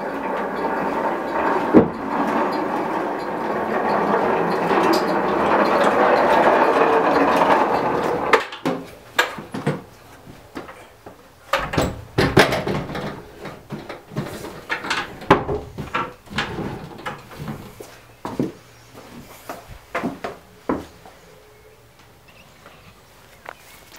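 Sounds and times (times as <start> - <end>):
steel wheels rattling on rails: 0.0 - 9.9, 11.6 - 17.8
metal wagon knocks and clunks: 0.0 - 10.0, 11.5 - 17.8.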